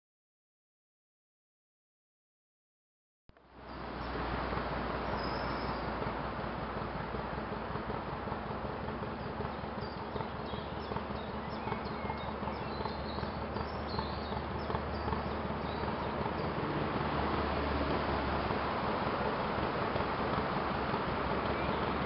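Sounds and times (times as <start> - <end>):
boat engine chugging: 3.4 - 22.0
bird chirps: 5.0 - 5.9, 9.2 - 16.6, 21.4 - 22.0.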